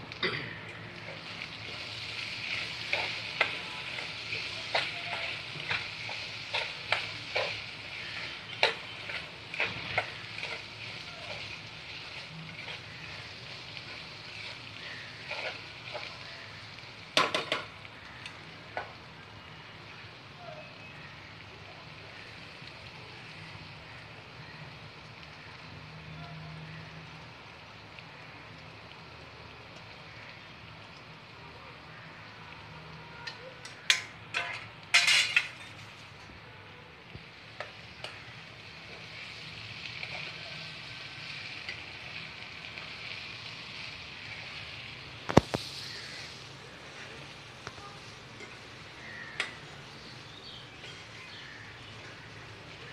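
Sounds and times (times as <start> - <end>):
vegetables sizzling in oil: 0.0 - 52.9
spoon stirring and scraping pan: 0.9 - 19.0, 33.2 - 36.3, 37.5 - 40.4, 47.6 - 51.4.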